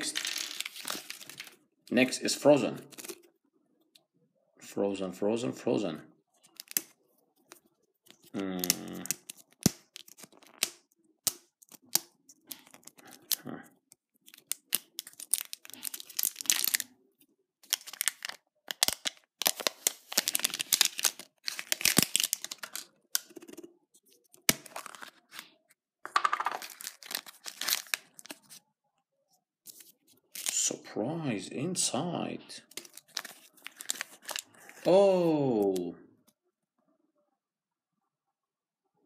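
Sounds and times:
foil packet rustling: 0:00.0 - 0:01.6, 0:14.2 - 0:16.9, 0:17.6 - 0:23.5, 0:26.2 - 0:28.6, 0:32.8 - 0:34.9
plastic shrink-wrap crinkling: 0:00.0 - 0:01.6, 0:14.2 - 0:16.9, 0:17.6 - 0:22.9, 0:26.2 - 0:28.6, 0:32.7 - 0:34.9
plastic capsule clicks: 0:26.1 - 0:27.0.

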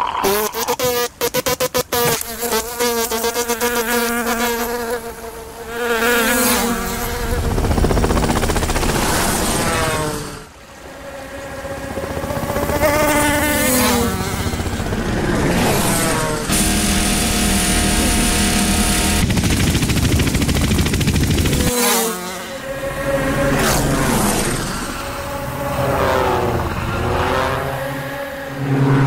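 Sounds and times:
cartoon insect wings buzzing: 0:00.0 - 0:28.8
deep rushing rumble: 0:22.8 - 0:29.0.

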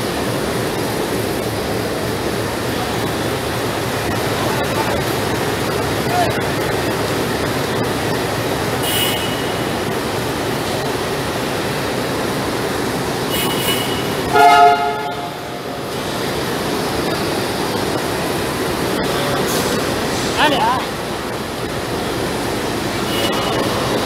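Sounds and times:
busy railway station din: 0:00.0 - 0:24.0
train horn blast: 0:08.8 - 0:09.8, 0:13.3 - 0:15.7.

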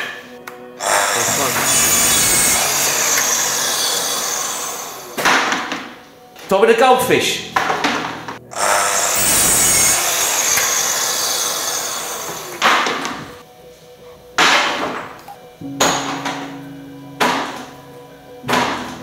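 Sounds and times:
mitre saw cutting wood: 0:00.8 - 0:05.6, 0:08.5 - 0:13.4.

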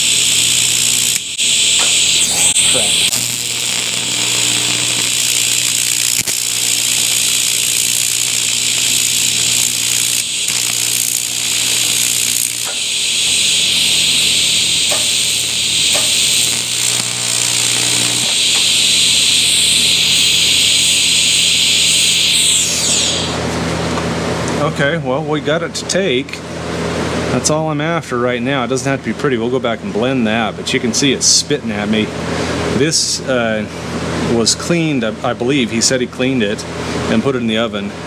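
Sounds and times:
welding arc buzzing hiss: 0:00.0 - 0:23.7.

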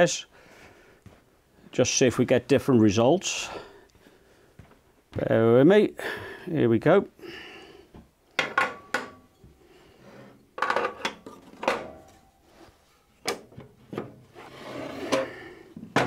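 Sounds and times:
tools and wood knocking on workbench: 0:08.4 - 0:09.2.

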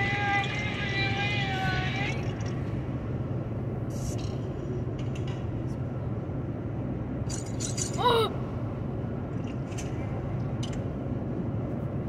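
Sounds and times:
vehicle road rumble: 0:00.0 - 0:12.0
short high-pitched vocal sound: 0:08.0 - 0:08.3.

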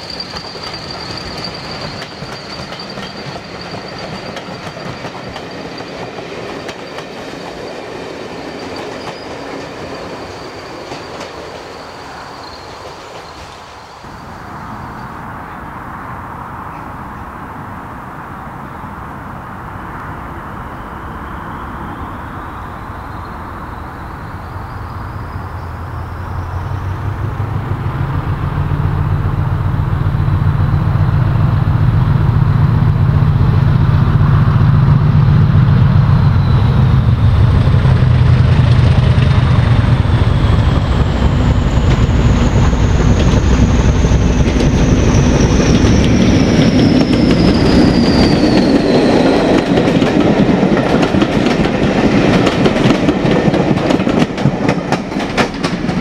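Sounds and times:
wheels clacking over rail joints: 0:00.0 - 0:11.8, 0:37.2 - 0:56.0
diesel locomotive engine drone: 0:00.0 - 0:56.0
high whistle falling in pitch: 0:20.7 - 0:27.2, 0:40.1 - 0:49.9.

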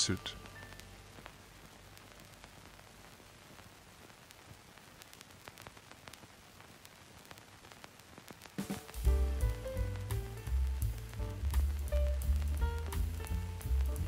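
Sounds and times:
music: 0:00.0 - 0:02.0, 0:08.6 - 0:14.0
crackling clicks: 0:00.0 - 0:14.0
static hiss: 0:00.0 - 0:14.0.

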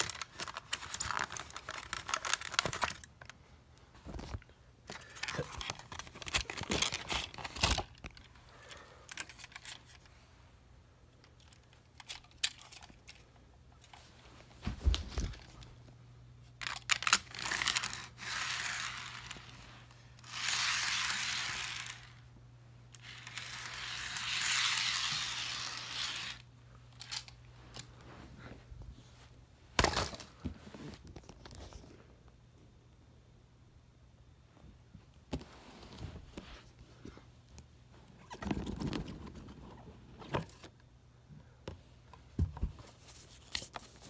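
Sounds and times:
packaging crinkling and rustling: 0:00.0 - 0:03.4, 0:04.0 - 0:08.3.

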